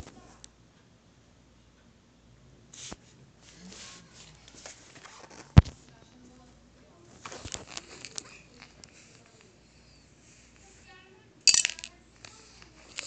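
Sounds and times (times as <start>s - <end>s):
light clicks and rattles: 7.1s - 9.6s, 11.5s - 13.0s
spinning top on wooden floor: 11.4s - 13.0s.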